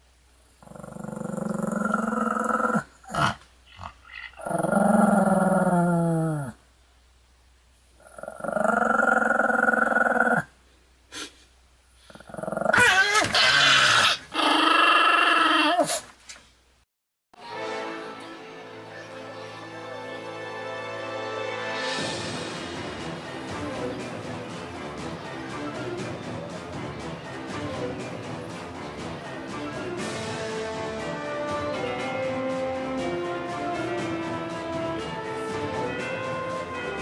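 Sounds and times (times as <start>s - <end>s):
dog growling: 0.6s - 6.6s, 8.0s - 10.5s, 12.1s - 16.0s.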